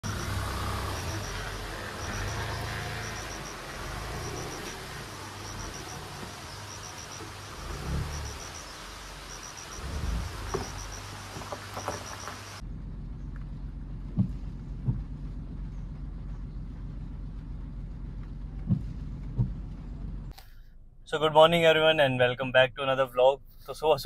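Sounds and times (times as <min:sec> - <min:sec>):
insects chirping in high pips: 0:00.0 - 0:12.6
car engine driving off: 0:00.0 - 0:22.0.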